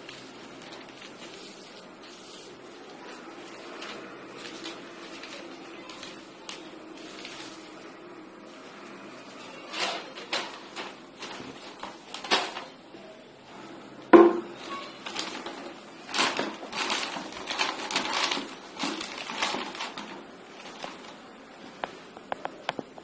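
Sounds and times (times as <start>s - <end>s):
newspaper crinkling: 0.0s - 12.8s, 14.6s - 22.9s
sharp knock: 14.1s - 14.6s.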